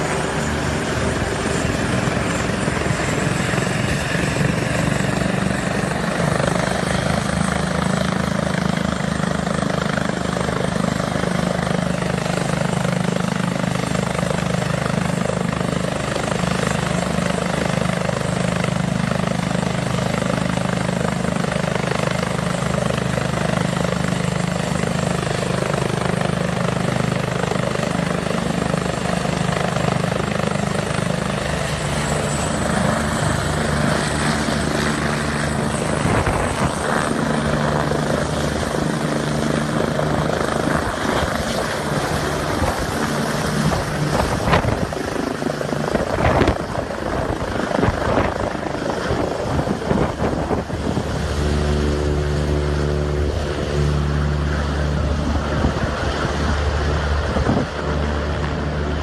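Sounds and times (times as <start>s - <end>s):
helicopter rotors and turbine: 0.0s - 59.0s.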